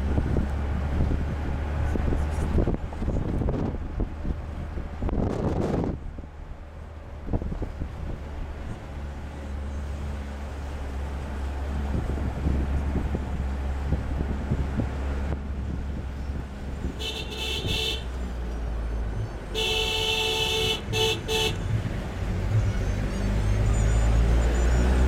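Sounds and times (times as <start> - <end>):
engine and road rumble: 0.0 - 25.0
vehicle horn honking: 16.9 - 18.2, 19.5 - 21.6.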